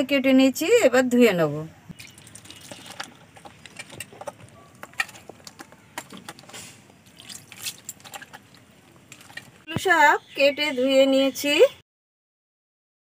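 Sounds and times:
wet clicks and squelches: 1.9 - 9.9
wet hands rubbing fish: 2.5 - 9.6.

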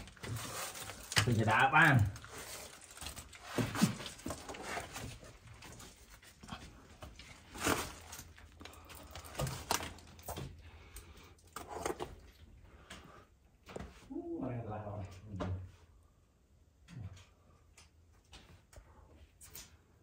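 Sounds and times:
person breathing: 10.6 - 11.6, 12.6 - 13.4.

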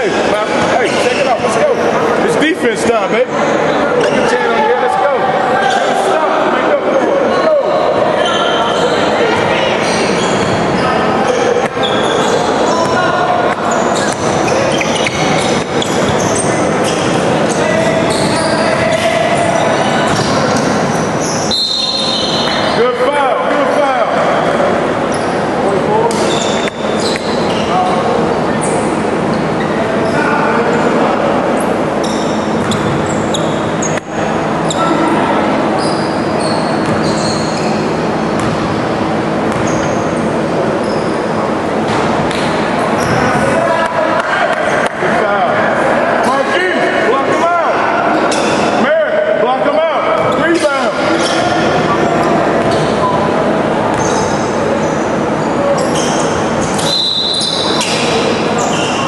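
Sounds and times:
sneakers squeaking on court: 3.4 - 4.5, 6.9 - 22.8, 24.2 - 30.3, 31.6 - 43.5, 49.7 - 59.0
basketball bouncing on court: 32.5 - 33.0, 36.7 - 37.6, 38.3 - 40.1
basketball bouncing: 38.4 - 38.8, 39.5 - 39.9.

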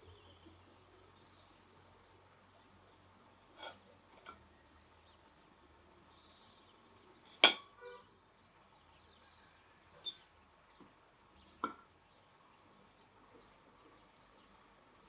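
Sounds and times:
cutlery clinking against plate: 3.6 - 4.5, 7.3 - 7.7.

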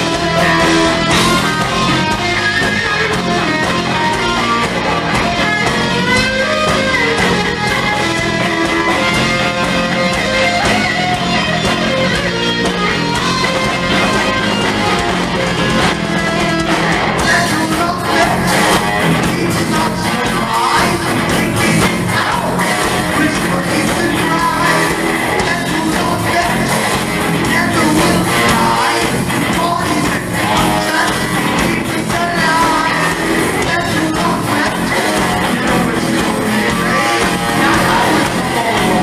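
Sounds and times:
bass guitar: 0.0 - 39.0
drums: 0.0 - 39.0
electric guitar: 0.0 - 39.0
man singing: 17.2 - 39.0.

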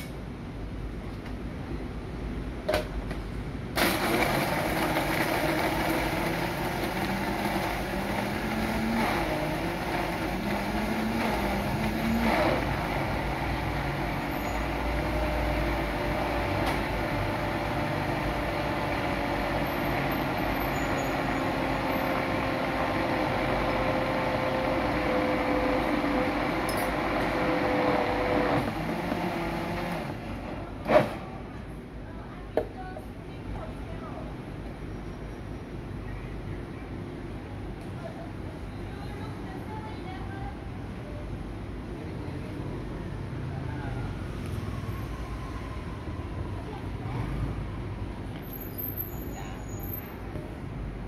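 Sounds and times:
blender motor whining: 3.8 - 30.2
blender churning ice: 3.8 - 30.3.

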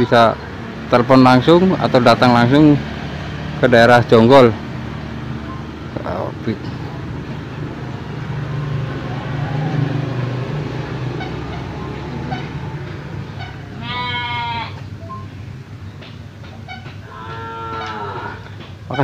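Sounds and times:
farm animal bleating: 13.4 - 14.8, 17.0 - 19.0.

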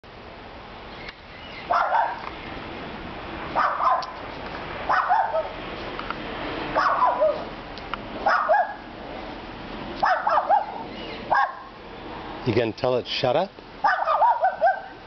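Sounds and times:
dog barking: 1.7 - 2.2, 3.6 - 4.2, 4.9 - 5.6, 6.8 - 7.5, 8.2 - 8.9, 10.0 - 11.7, 13.8 - 15.0.

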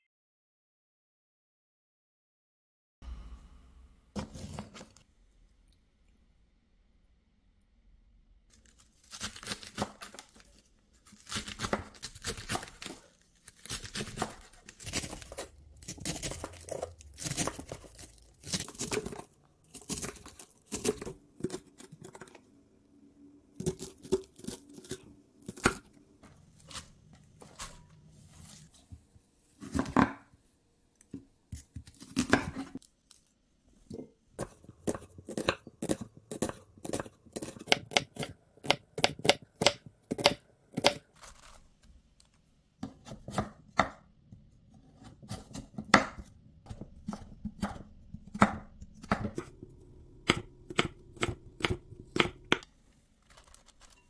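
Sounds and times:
knife slicing cabbage: 8.6 - 22.3, 34.4 - 41.6, 42.8 - 44.0, 44.7 - 54.0
knife chopping on cutting board: 34.4 - 41.0, 44.8 - 49.6, 50.2 - 52.6.

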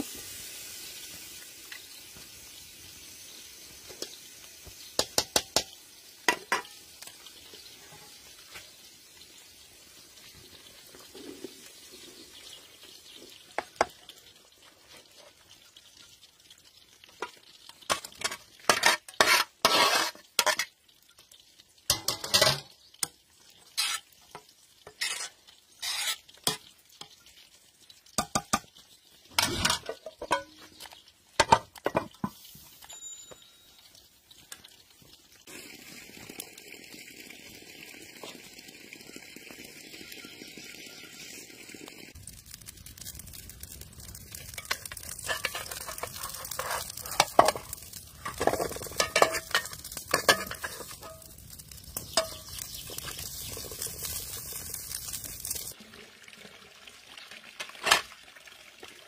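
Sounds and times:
steady hiss: 0.0 - 6.7
food frying in oil: 0.0 - 59.0
metal ladle scraping a pot: 17.9 - 20.7, 23.7 - 24.1, 24.8 - 26.6, 44.5 - 51.3, 52.0 - 53.8
spoon clinks: 32.8 - 33.8.

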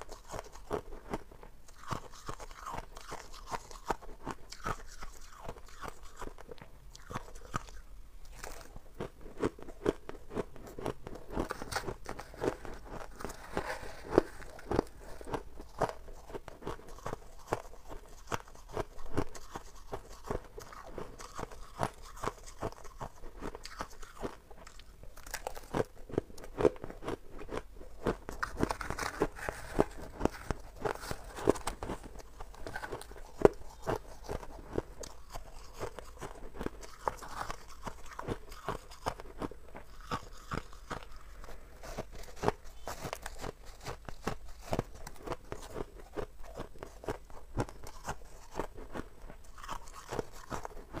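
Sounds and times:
crunching frost ice: 28.3 - 41.2.

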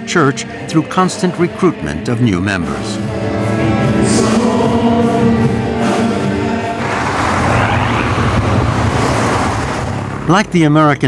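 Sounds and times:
worship music with singing: 0.0 - 8.2
bus driving past: 5.6 - 10.3
road traffic noise: 5.7 - 11.0.

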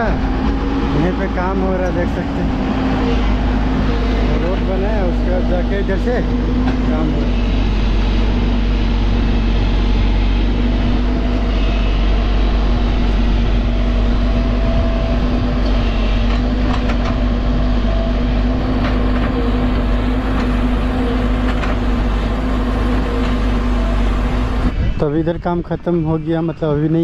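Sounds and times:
excavator engine and hydraulics: 0.0 - 27.0.

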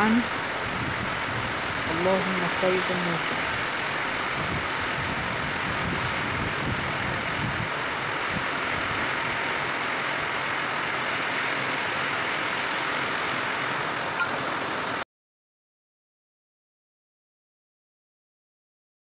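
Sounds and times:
rain falling on street and cars: 0.0 - 15.0.

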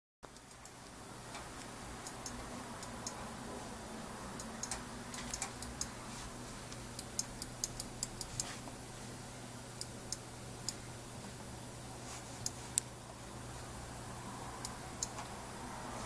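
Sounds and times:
faint steady hum: 0.2 - 16.0
computer mouse clicking: 0.3 - 3.2, 4.4 - 5.9, 6.7 - 8.6, 12.4 - 12.9, 14.6 - 15.4.

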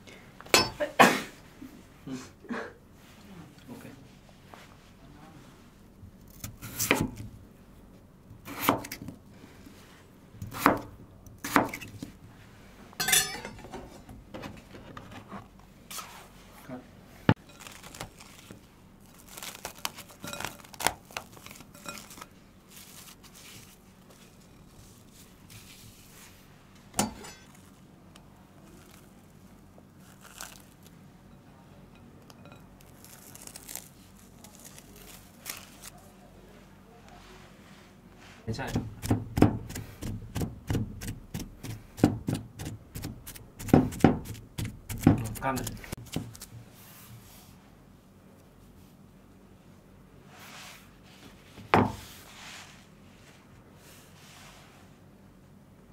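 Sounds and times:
knife chopping on cutting board: 6.4 - 7.2, 8.4 - 9.0, 10.5 - 12.0, 38.6 - 46.5
cling wrap peeled and crinkling: 17.4 - 26.0, 27.5 - 31.0, 32.8 - 36.3.

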